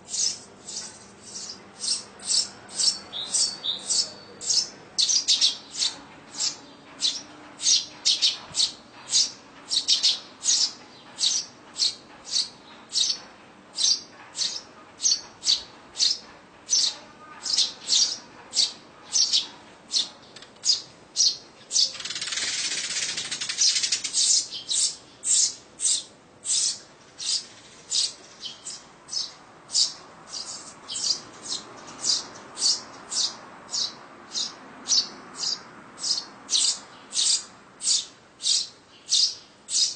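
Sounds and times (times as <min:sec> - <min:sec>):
sparrows chirping: 0:00.0 - 0:39.9.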